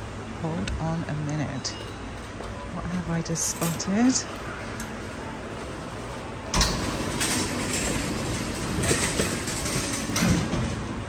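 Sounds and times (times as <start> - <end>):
shopping trolley rolling rattle: 3.3 - 4.3, 6.5 - 11.0.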